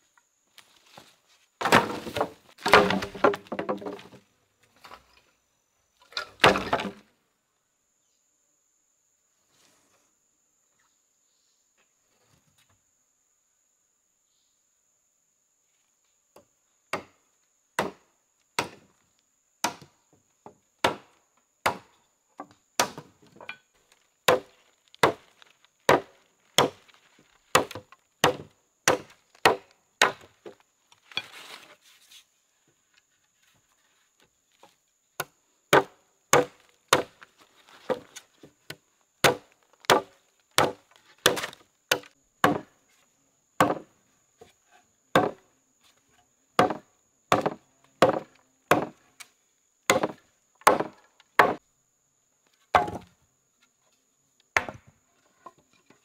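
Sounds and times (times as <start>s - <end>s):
wood being chopped: 1.6s - 4.2s, 6.2s - 7.0s, 17.8s - 18.0s, 18.6s - 18.9s, 19.6s - 19.9s, 20.8s - 23.6s, 24.3s - 26.9s, 27.5s - 30.6s, 35.2s - 37.2s, 39.2s - 42.7s, 43.6s - 43.9s, 45.1s - 45.4s, 46.6s - 49.0s, 49.9s - 51.6s, 52.7s - 53.1s, 54.6s - 54.9s
scraping rustle: 31.0s - 34.2s.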